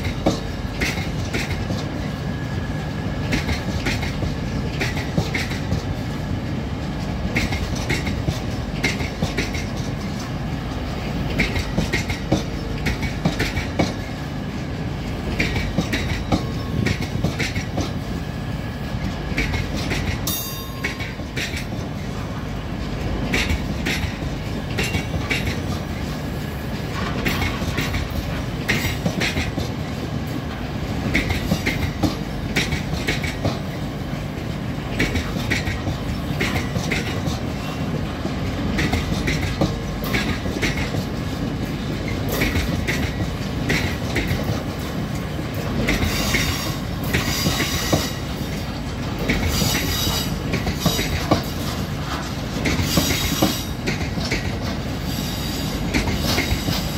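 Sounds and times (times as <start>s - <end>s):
wheels clacking over rail joints: 0.0s - 2.4s, 3.2s - 18.3s, 19.0s - 56.9s
freight train rumbling: 0.0s - 56.9s
wheels squealing on rails: 38.6s - 56.9s.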